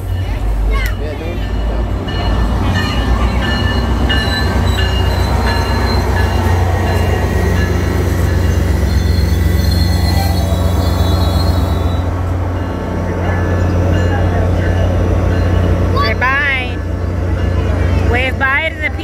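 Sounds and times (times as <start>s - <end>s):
diesel locomotive drone: 0.0s - 19.0s
train cars rumbling: 0.0s - 19.0s
wheel squeal: 8.5s - 12.1s.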